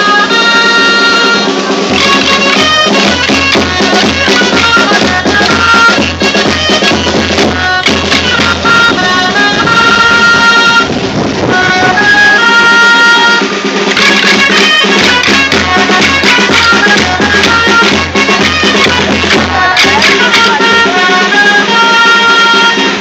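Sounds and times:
low drumbeat: 0.0 - 21.4
reedy pipe melody: 0.0 - 23.0
steady drone: 0.0 - 23.0
wooden sticks clacking: 1.9 - 9.4, 13.9 - 20.8.

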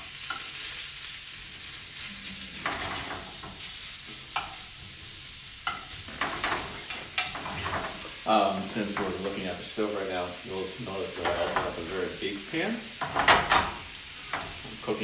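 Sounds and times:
food sizzling in frying pan: 0.0 - 15.0
utensil clicking against pan: 0.2 - 0.6, 2.6 - 4.6, 5.6 - 8.1
utensil scraping pan: 2.0 - 4.6, 5.7 - 8.2.

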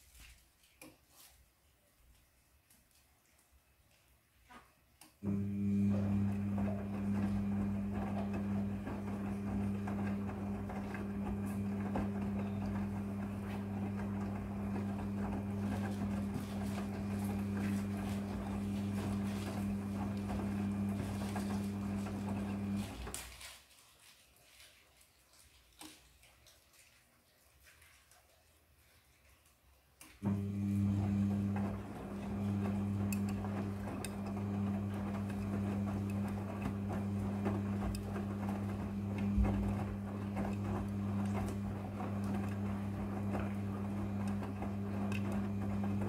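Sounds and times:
washing machine motor hum: 5.2 - 23.2, 30.2 - 46.0
clothes tumbling in drum: 6.2 - 23.2.

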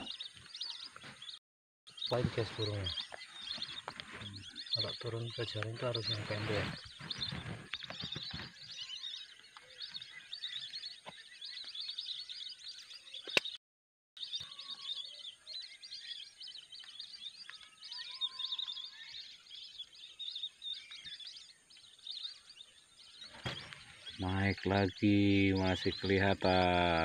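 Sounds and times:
whistling ducks chirping: 14.2 - 27.0.

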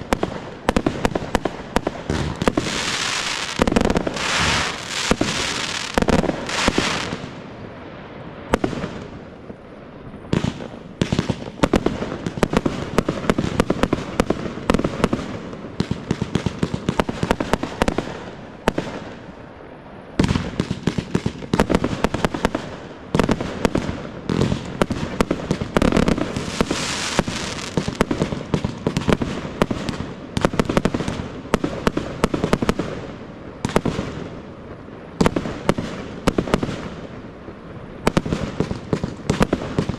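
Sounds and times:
fireworks crackling: 0.0 - 39.9
firework shells bursting: 0.2 - 7.3.

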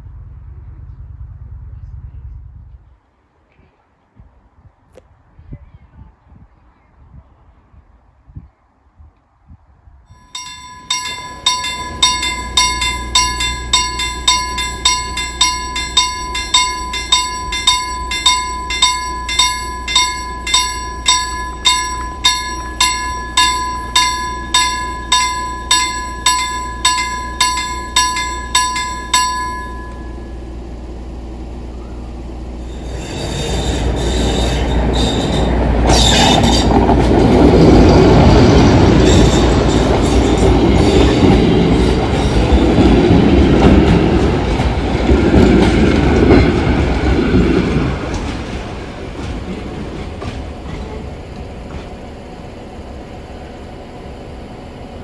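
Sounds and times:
diesel locomotive passing: 0.0 - 3.0, 10.2 - 55.0
level crossing bell ringing: 10.2 - 30.7.

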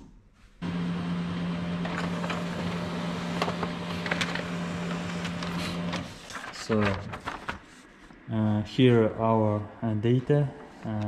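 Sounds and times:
printer motor hum: 0.6 - 6.4
sharp clicks of paper feed: 1.4 - 7.9.

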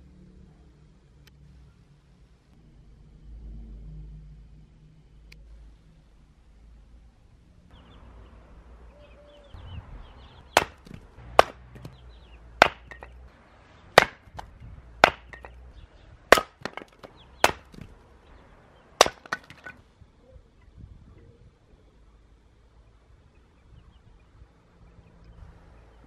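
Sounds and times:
hatchet chopping wood: 10.5 - 12.0, 12.6 - 13.2, 14.0 - 15.6, 16.3 - 17.9, 19.0 - 19.8
small knocks: 10.5 - 12.0, 12.6 - 13.3, 14.0 - 15.6, 16.3 - 18.0, 19.0 - 19.8.

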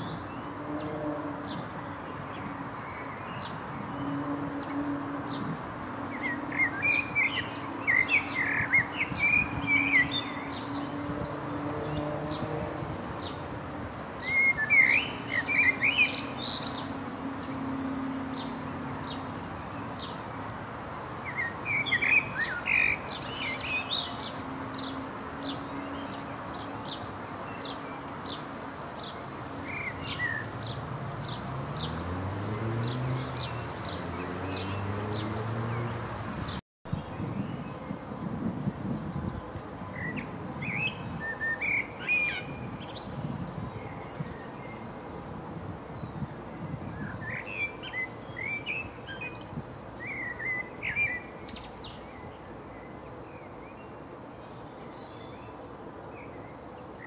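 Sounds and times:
blackbird singing: 5.3 - 10.8, 14.2 - 16.9, 21.3 - 28.4, 46.9 - 52.3.

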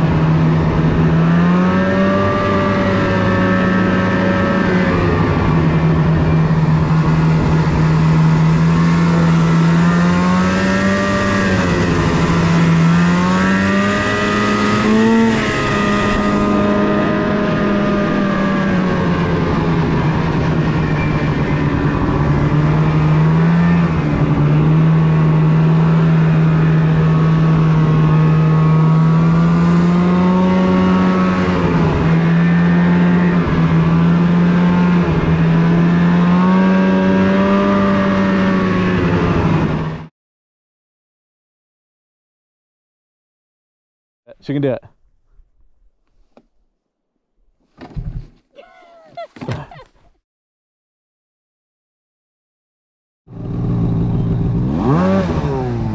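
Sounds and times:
snowmobile engine: 0.0 - 40.1, 53.3 - 55.9.

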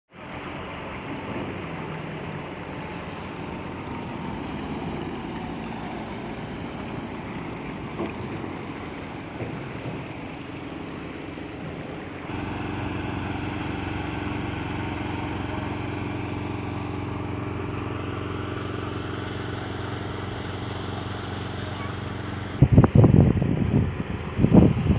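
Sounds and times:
engine hum: 0.1 - 24.9
wind noise on microphone: 22.4 - 24.9.

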